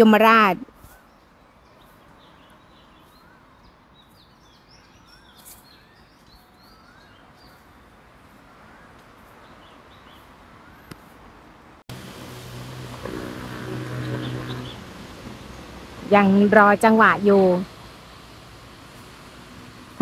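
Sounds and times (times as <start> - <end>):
birds chirping: 11.9 - 20.0
low hum: 11.9 - 20.0.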